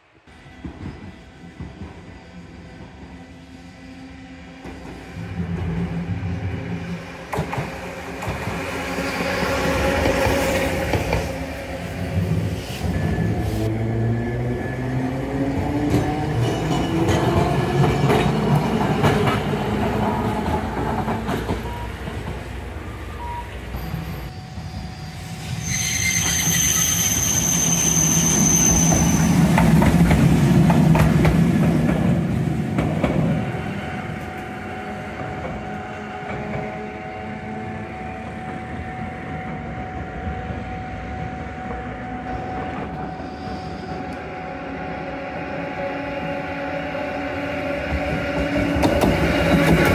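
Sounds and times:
tram running: 0.1s - 49.9s
wheel squeal: 23.3s - 29.4s.

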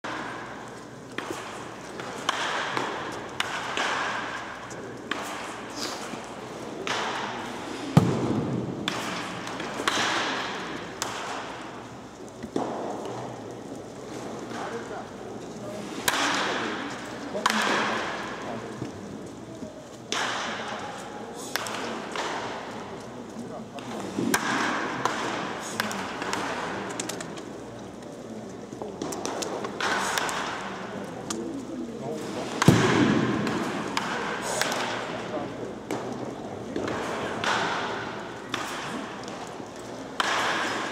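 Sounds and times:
baseball bat hitting balls: 0.0s - 13.4s, 16.0s - 18.4s, 23.8s - 27.4s, 32.2s - 40.9s
background murmur: 0.0s - 40.9s.

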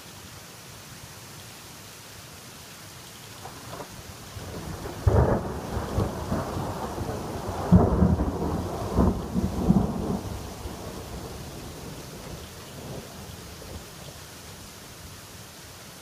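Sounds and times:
rain hiss: 0.0s - 16.0s
thunder clap and rumble: 3.7s - 13.8s.

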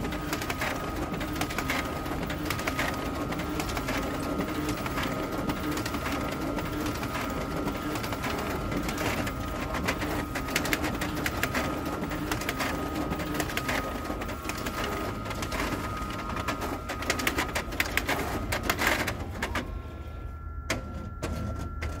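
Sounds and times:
paper clicking and rattling: 0.0s - 19.6s
copier printer running: 0.0s - 22.0s
machine hum: 0.0s - 22.0s
high whine: 14.7s - 22.0s.

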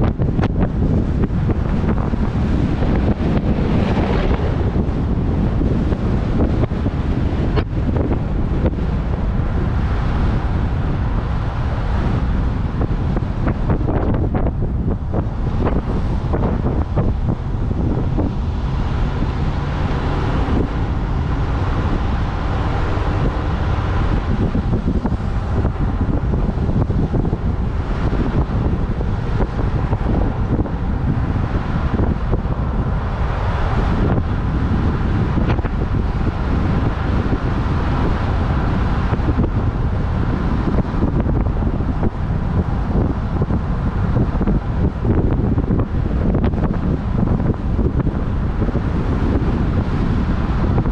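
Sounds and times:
vehicle drone and tyre noise: 0.0s - 50.9s
wind rushing over microphone: 0.0s - 50.9s.

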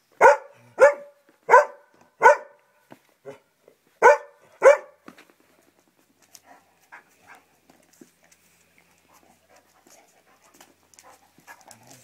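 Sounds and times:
dog barking: 0.2s - 2.6s, 3.2s - 5.0s.

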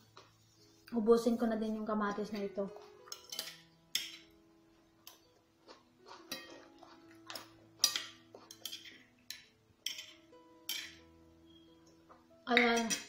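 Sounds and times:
faint background music: 0.0s - 13.0s
metal spoon clinking on plate: 3.0s - 4.3s, 6.3s - 11.1s.

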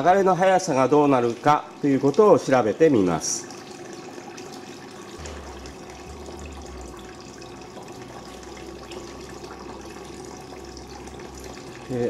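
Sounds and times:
water rushing through channel: 5.1s - 12.0s
low hum: 5.2s - 9.6s.

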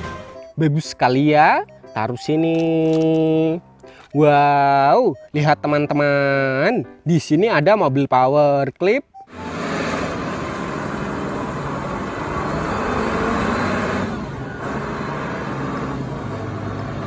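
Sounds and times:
forklift engine running: 9.3s - 17.0s.

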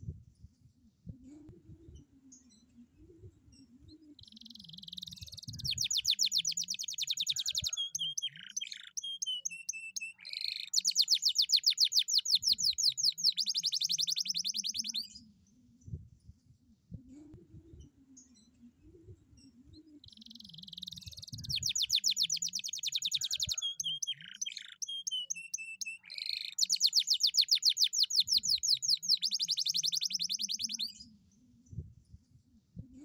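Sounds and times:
canary singing trills: 4.0s - 15.2s, 19.4s - 31.1s.

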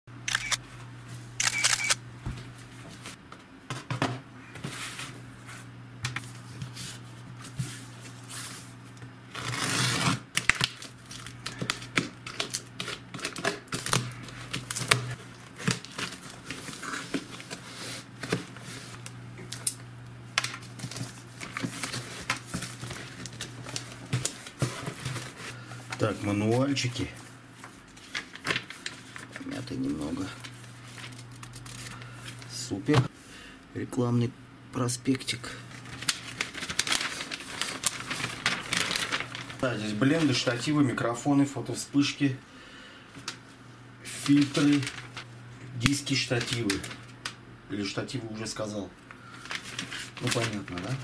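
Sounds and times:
cardboard parcel being opened: 9.3s - 19.0s, 20.4s - 27.1s, 27.7s - 32.6s, 35.7s - 40.7s, 44.1s - 45.3s, 45.9s - 47.2s, 49.2s - 51.0s.

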